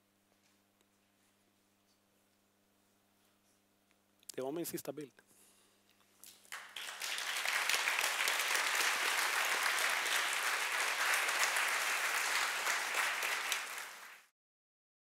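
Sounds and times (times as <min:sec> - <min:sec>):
audience applauding: 0:06.3 - 0:14.3.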